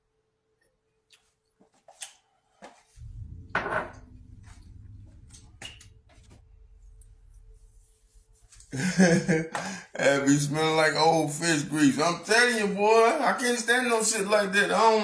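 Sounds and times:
glass and plate knocking: 0:03.5 - 0:04.0.

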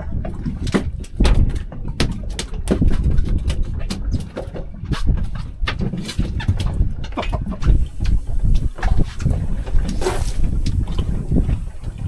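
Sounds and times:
fishing gear clicking and knocking: 0:00.3 - 0:11.1
steady low rumble: 0:07.0 - 0:12.0.

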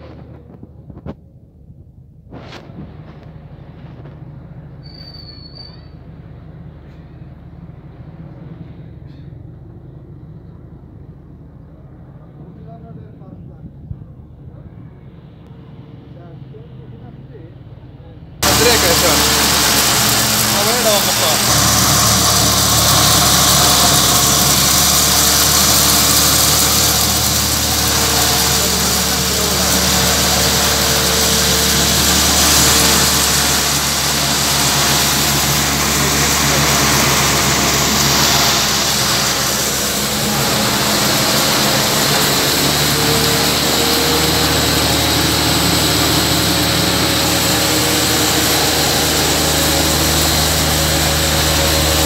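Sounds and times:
electric grain mill running: 0:18.4 - 0:52.0.

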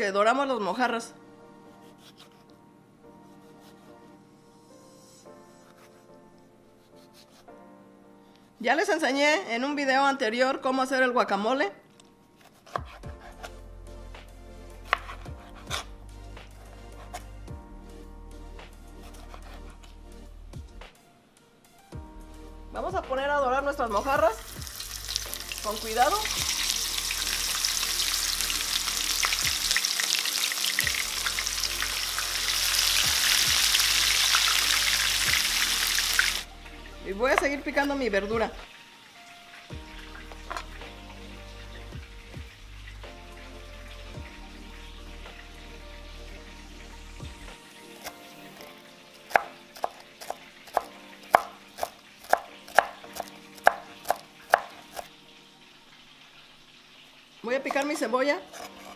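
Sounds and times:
knife chopping on cutting board: 0:12.4 - 0:13.6, 0:14.8 - 0:17.3, 0:40.4 - 0:40.7, 0:49.3 - 0:55.1, 0:58.6 - 0:58.9
fish sizzling in hot oil: 0:24.3 - 0:36.5, 0:47.4 - 0:58.9.

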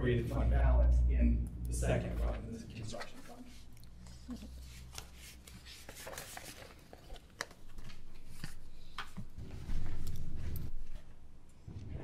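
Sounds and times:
paper rustling: 0:04.4 - 0:10.6.

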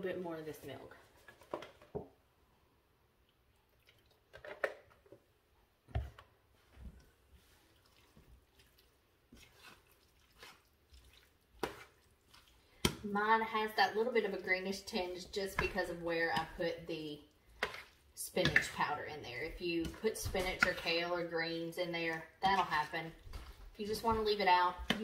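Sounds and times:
spatula squishing thick filling: 0:06.7 - 0:25.0.

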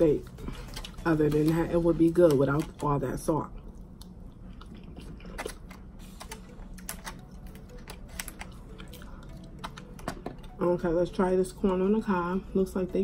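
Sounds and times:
chewing: 0:03.6 - 0:05.9.

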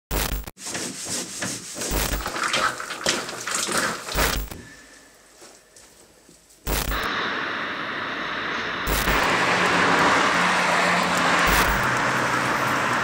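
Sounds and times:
knocks taps and clatter: 0:00.8 - 0:04.6.

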